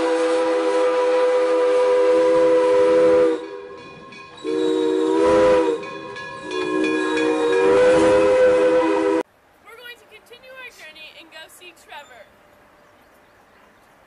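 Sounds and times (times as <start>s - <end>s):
steam locomotive whistle: 0.0s - 9.2s.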